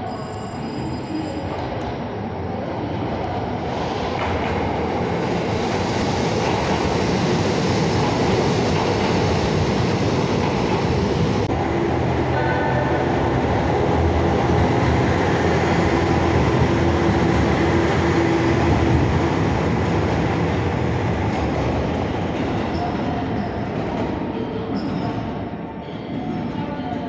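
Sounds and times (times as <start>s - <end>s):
railcar diesel engine running: 5.1s - 22.7s.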